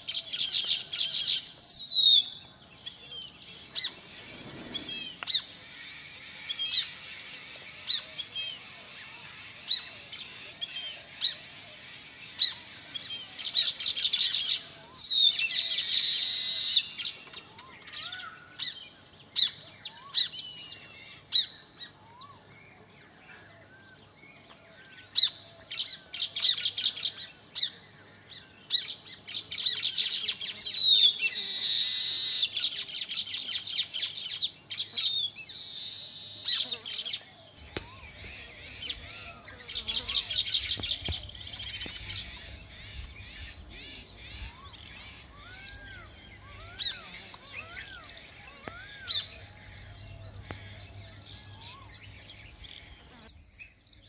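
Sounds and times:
bird calls with falling whistles: 0.0s - 7.0s, 12.4s - 18.8s, 28.8s - 54.0s.

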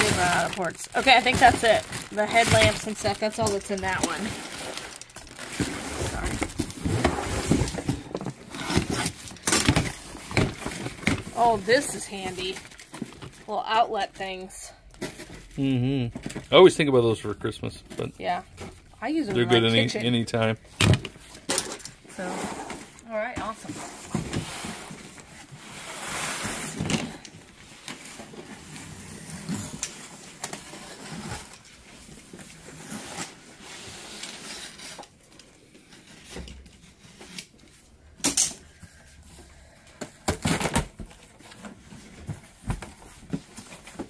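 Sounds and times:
packaging rustling and crinkling: 0.0s - 13.5s.

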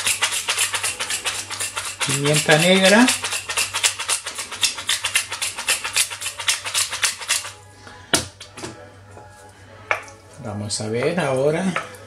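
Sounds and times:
pepper mill grinding clicks: 0.0s - 7.5s.

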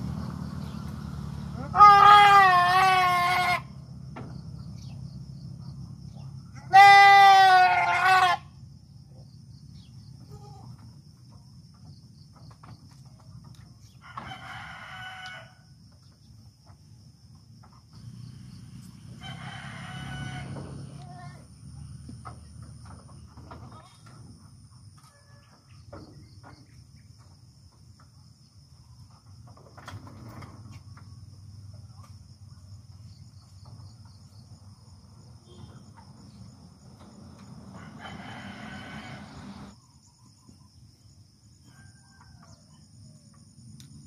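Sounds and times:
goats bleating: 1.6s - 3.6s, 6.7s - 8.4s.

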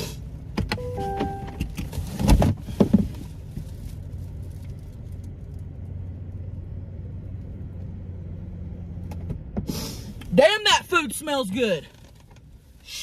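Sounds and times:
car engine idling: 0.0s - 13.0s
knocks and rustling of handling: 0.6s - 4.8s
short beeping tones: 0.8s - 1.6s.

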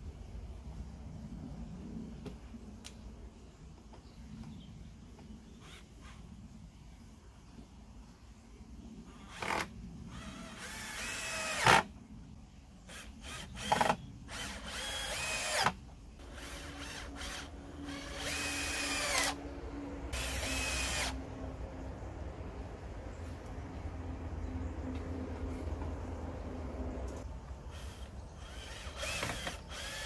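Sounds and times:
cordless drill driving screws: 12.9s - 19.4s, 20.2s - 21.2s, 27.8s - 30.0s.

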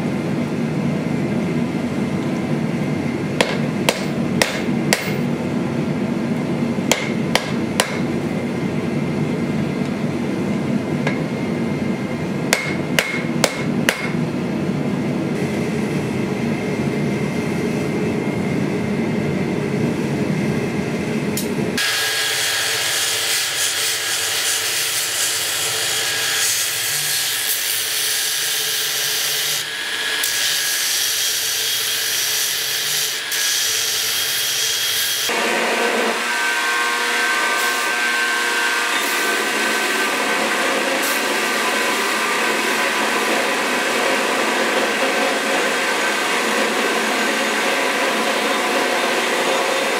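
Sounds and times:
hammer ringing on anvil: 12.5s - 14.2s
belt grinder grinding steel: 21.8s - 49.9s.

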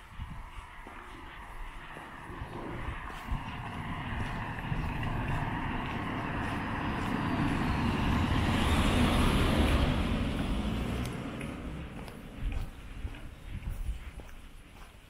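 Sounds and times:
car driving past: 1.9s - 13.2s.

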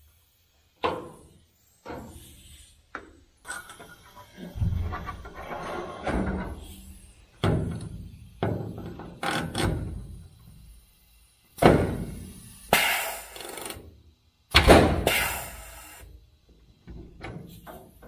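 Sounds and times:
pneumatic tool sharp clunks: 0.8s - 5.4s, 6.0s - 10.2s, 11.6s - 13.8s, 14.5s - 16.1s.

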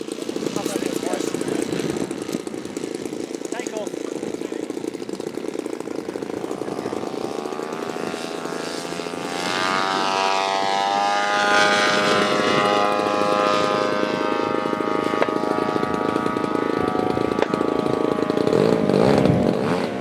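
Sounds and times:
model plane engine drone: 0.0s - 20.0s.

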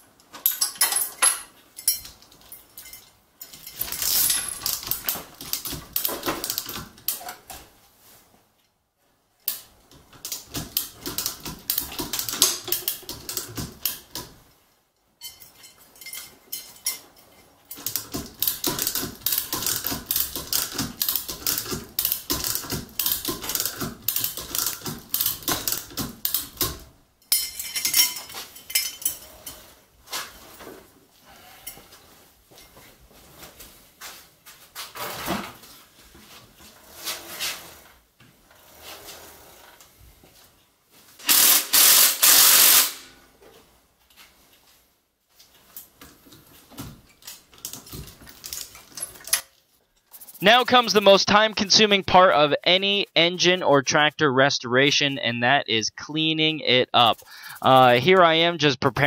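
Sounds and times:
chain rattling through hoist: 0.4s - 7.3s, 10.2s - 14.2s, 15.2s - 29.6s, 47.6s - 49.5s.

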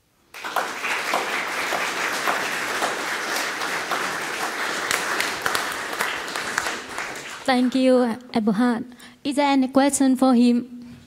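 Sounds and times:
audience applauding: 0.3s - 7.8s.

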